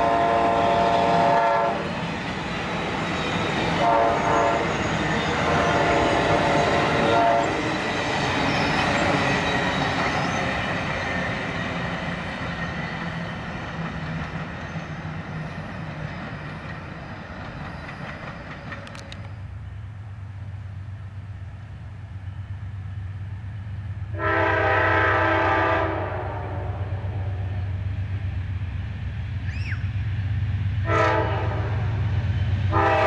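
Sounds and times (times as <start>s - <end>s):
train horn: 0.0s - 2.0s, 3.6s - 7.7s, 24.1s - 27.8s, 30.8s - 32.0s, 32.7s - 33.0s
train cars rumbling and clattering: 0.0s - 33.0s.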